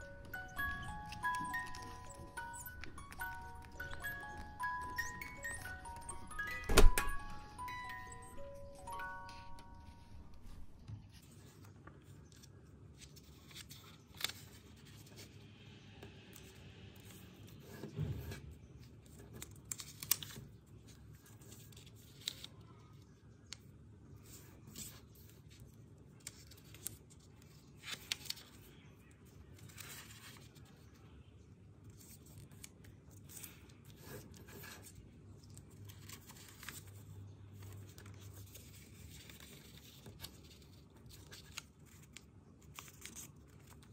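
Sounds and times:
paper rustling and crinkling: 0.0s - 15.4s, 18.0s - 23.1s, 24.2s - 31.0s, 31.9s - 43.9s
paper crackling as folded: 7.3s - 15.4s, 18.8s - 23.6s, 24.2s - 31.1s, 31.9s - 43.9s.

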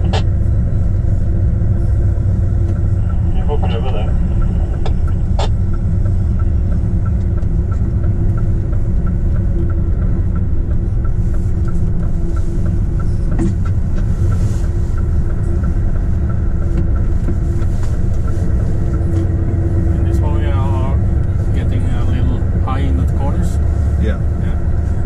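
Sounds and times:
truck engine and road rumble: 0.0s - 25.0s
light ticking: 2.1s - 23.1s.

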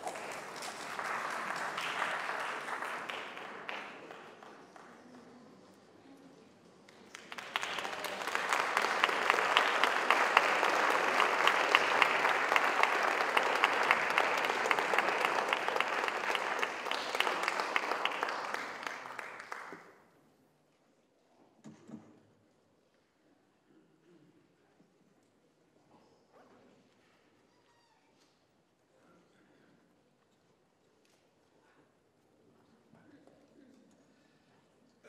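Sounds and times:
audience applauding: 0.0s - 5.6s, 6.9s - 19.9s.

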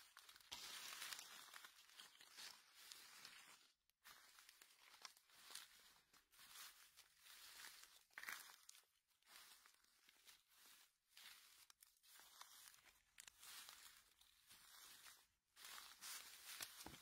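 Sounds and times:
dry leaves rustling and crunching: 0.0s - 17.0s.

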